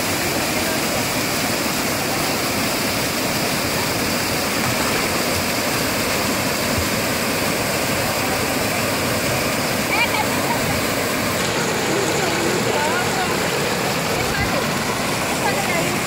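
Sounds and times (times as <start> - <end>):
waterfall cascading over rocks: 0.0 - 16.0.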